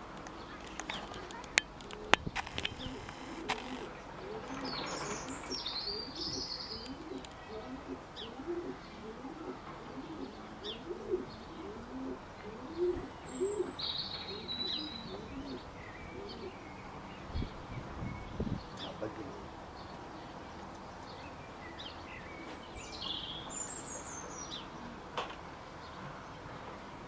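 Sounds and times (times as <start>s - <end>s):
small birds chirping: 0.2s - 25.1s
pigeon cooing: 1.8s - 16.6s.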